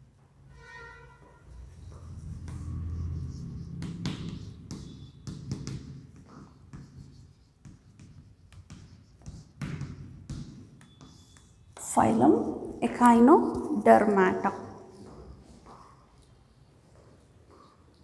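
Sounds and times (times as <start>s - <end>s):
chalk tapping and scratching on chalkboard: 1.5s - 16.4s.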